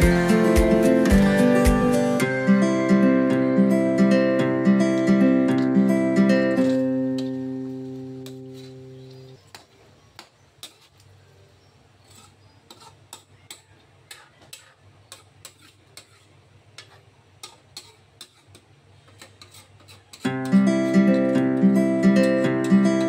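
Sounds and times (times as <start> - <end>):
metal ladle scraping a wok: 6.4 - 9.6, 10.6 - 11.0, 12.0 - 21.5.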